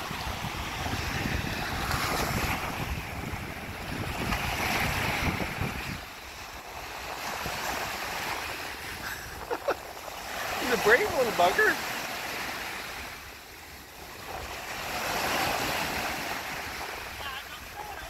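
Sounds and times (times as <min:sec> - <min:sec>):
wind buffeting microphone: 0:00.0 - 0:11.7
rough surf breaking: 0:00.0 - 0:18.0.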